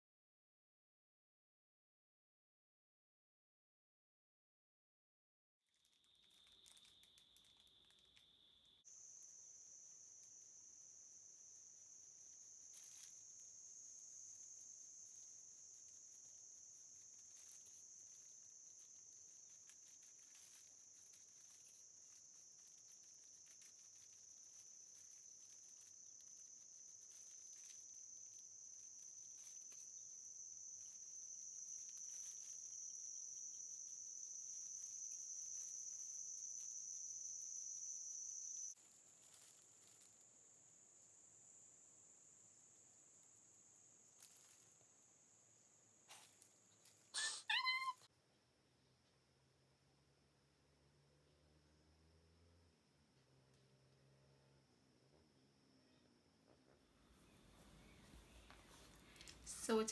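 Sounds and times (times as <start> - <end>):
faint ticks: 57.6 - 59.9.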